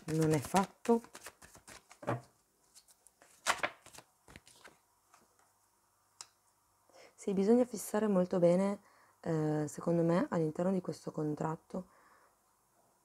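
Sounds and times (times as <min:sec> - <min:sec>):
cards being shuffled: 0:00.0 - 0:05.3.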